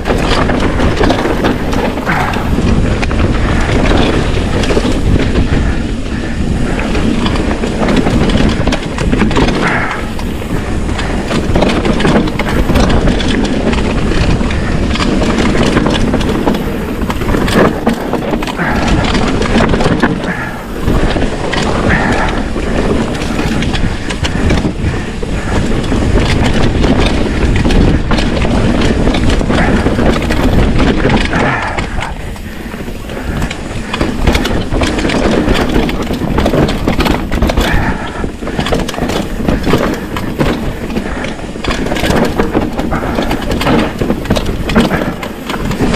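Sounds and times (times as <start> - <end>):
bike knocks and rattles: 0.0 - 45.9
bike tyres rumbling over roots: 0.0 - 45.9
heavy low rumble: 0.0 - 45.9.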